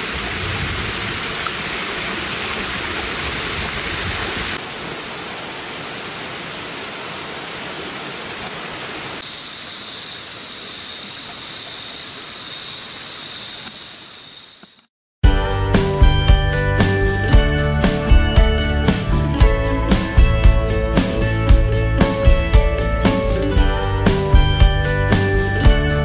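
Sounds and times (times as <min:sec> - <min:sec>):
waterfall splashing over rocks: 0:00.0 - 0:09.5
forest stream: 0:00.0 - 0:14.9, 0:15.8 - 0:26.0
forest background: 0:00.0 - 0:26.0.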